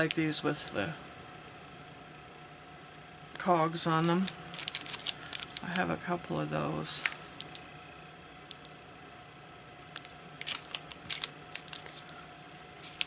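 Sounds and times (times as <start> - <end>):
plastic sleeves crinkling: 3.9 - 5.9, 6.9 - 7.7, 10.0 - 13.0
cards clicking: 4.0 - 5.8, 10.0 - 12.2.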